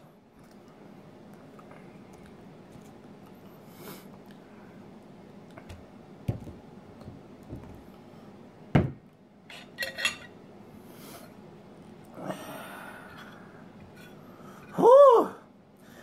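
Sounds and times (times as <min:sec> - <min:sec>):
fork clinking on ceramic plate: 0:09.5 - 0:10.3.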